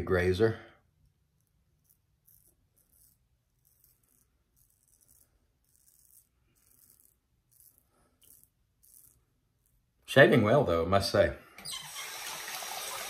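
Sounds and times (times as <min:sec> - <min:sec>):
razor blade scratching stubble: 0:01.0 - 0:09.9.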